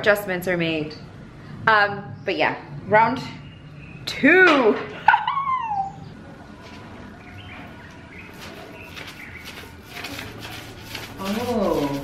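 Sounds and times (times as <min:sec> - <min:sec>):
paint roller rasping on wall: 0:08.2 - 0:12.0.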